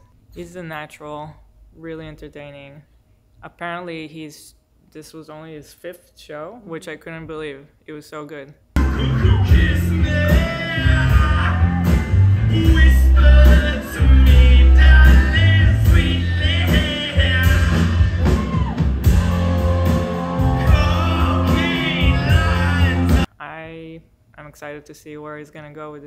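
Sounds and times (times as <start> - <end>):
lead singer: 8.8 - 23.3
live band performing: 8.8 - 23.3.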